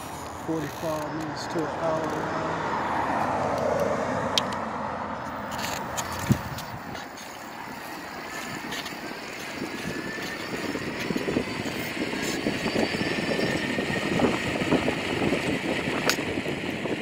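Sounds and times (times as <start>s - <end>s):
faint rising whine: 5.0s - 15.3s
wind buffeting microphone: 5.3s - 17.0s.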